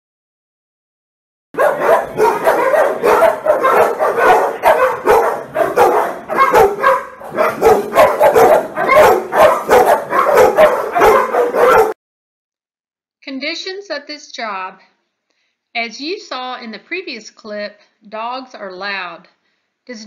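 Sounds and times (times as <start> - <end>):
dogs barking: 1.6 - 12.0.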